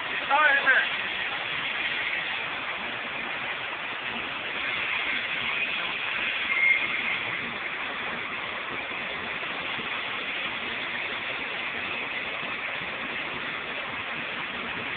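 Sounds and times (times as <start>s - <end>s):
welding shop hiss: 0.0s - 14.9s.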